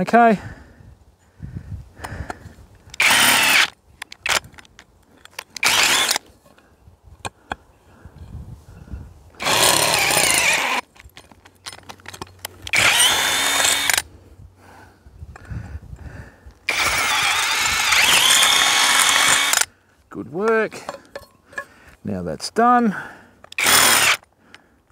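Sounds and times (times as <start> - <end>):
cordless drill running: 3.0 - 4.4, 5.6 - 6.2, 9.4 - 10.8, 12.7 - 14.0, 16.7 - 19.7, 23.6 - 24.3
handling clicks and knocks: 10.8 - 12.8, 20.4 - 21.8.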